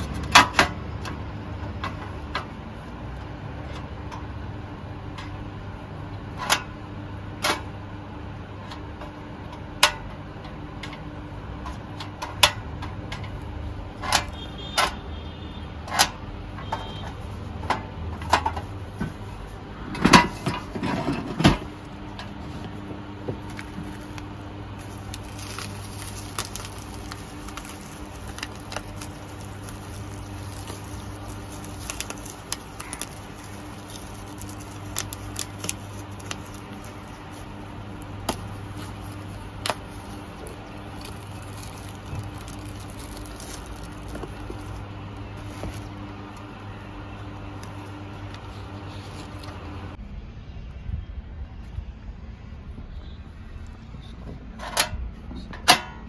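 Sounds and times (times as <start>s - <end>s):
metal stove clicking and clattering: 11.7s - 15.0s, 19.9s - 22.3s, 54.6s - 56.0s.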